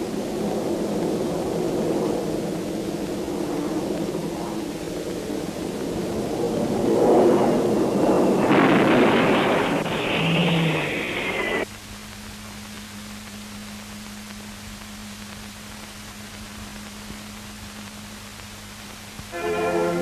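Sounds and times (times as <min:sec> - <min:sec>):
aircraft roar with falling whine: 0:00.0 - 0:20.0
faint low soundtrack hum: 0:09.6 - 0:20.0.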